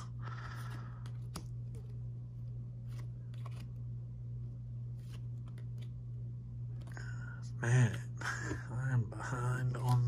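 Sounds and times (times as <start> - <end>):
steady low hum: 0.0 - 10.0
trading cards rustling: 2.7 - 3.9
card edges clicking and scraping: 2.8 - 3.8.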